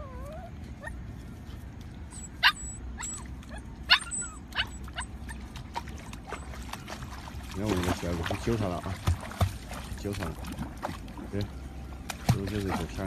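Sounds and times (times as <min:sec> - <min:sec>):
dog yipping: 0:02.1 - 0:05.6.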